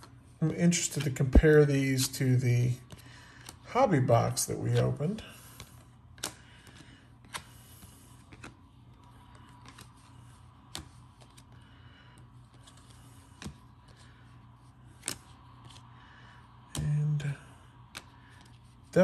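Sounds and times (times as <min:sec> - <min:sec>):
cards being handled: 0:00.0 - 0:19.0
cards clicking on a table: 0:05.5 - 0:14.1, 0:14.9 - 0:15.9, 0:16.6 - 0:17.1, 0:17.8 - 0:18.8.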